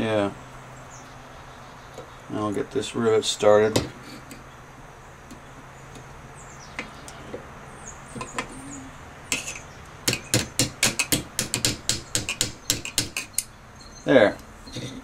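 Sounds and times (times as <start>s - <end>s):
light metal-on-metal tapping: 9.3s - 13.5s.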